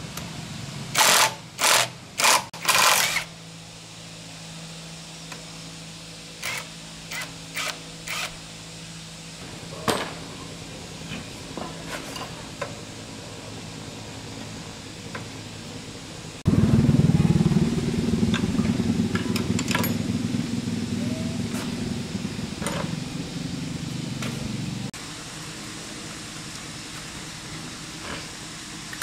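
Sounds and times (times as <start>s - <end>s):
machine pulsing loudly: 16.4s - 24.9s.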